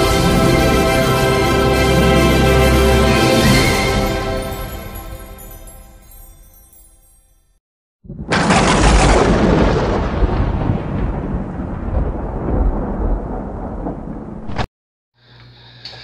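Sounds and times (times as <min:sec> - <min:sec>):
thunder-like boom with rumbling tail: 0:08.0 - 0:14.7.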